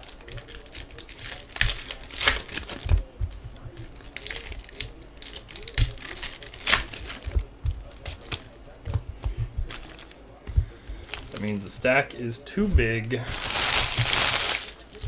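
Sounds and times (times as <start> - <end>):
foil packs torn and crinkled: 0.0 - 3.1, 3.8 - 7.4, 13.2 - 15.0.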